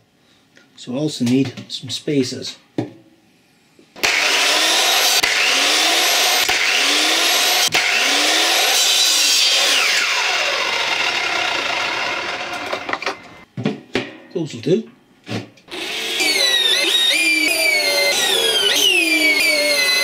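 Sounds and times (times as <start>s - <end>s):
electric saw cutting wood: 4.0s - 13.4s, 15.7s - 20.0s.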